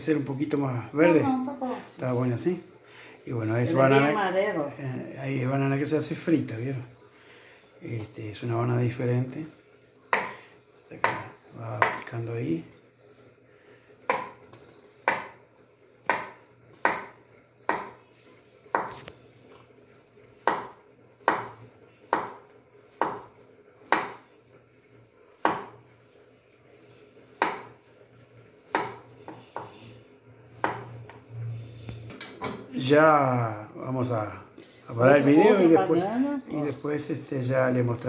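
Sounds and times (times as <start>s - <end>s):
knife slicing plantain: 18.7s - 19.1s, 20.4s - 24.2s, 25.4s - 25.8s, 28.7s - 29.8s.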